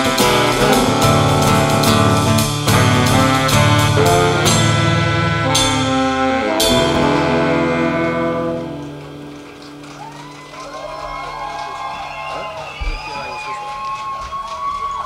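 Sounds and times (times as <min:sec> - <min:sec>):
rock band chords ringing: 0:00.0 - 0:10.5.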